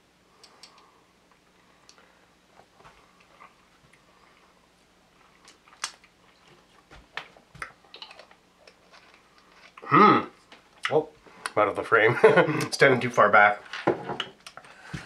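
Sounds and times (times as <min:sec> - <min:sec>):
mouth sounds of tasting: 0:09.8 - 0:11.6.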